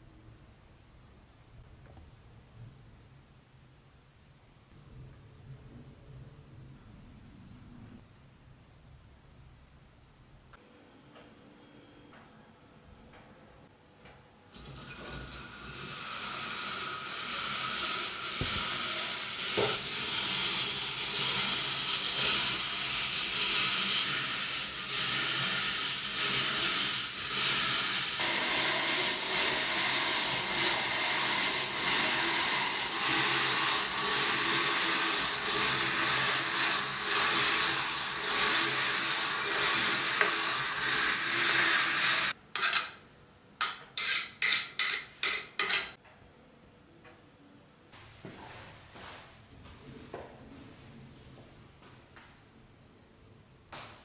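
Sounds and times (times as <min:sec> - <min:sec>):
rotary grater rasping: 0:16.7 - 0:42.7.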